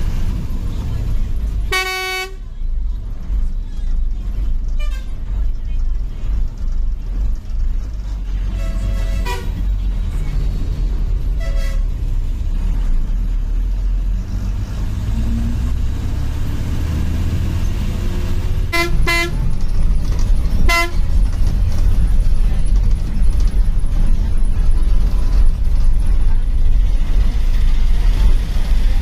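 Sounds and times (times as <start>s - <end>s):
bus engine and road rumble: 0.0s - 29.0s
horn honks: 1.6s - 2.5s, 4.7s - 5.2s, 8.4s - 9.7s, 11.3s - 12.0s, 18.7s - 19.5s, 20.6s - 21.2s.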